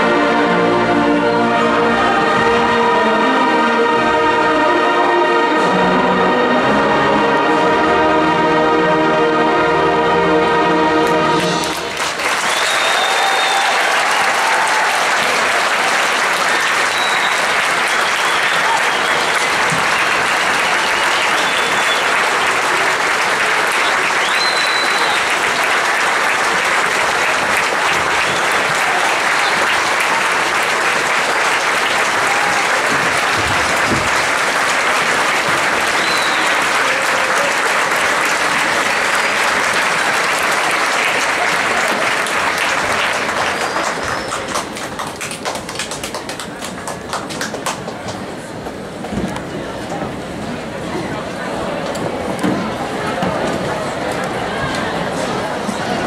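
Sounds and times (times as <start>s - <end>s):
audience applauding: 11.0s - 48.5s
audience cheering: 11.4s - 46.2s.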